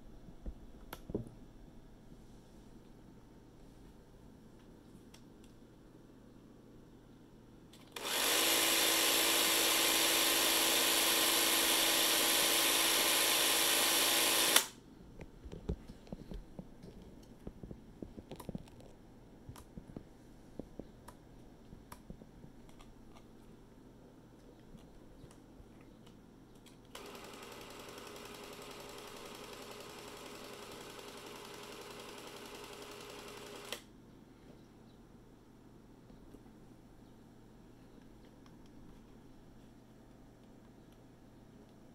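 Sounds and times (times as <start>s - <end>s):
film camera motor whirring: 7.9s - 14.7s, 26.9s - 33.9s.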